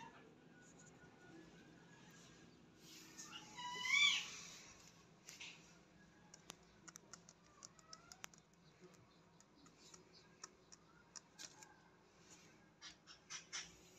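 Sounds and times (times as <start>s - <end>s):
faint irregular clicks and ticks: 4.8s - 13.7s.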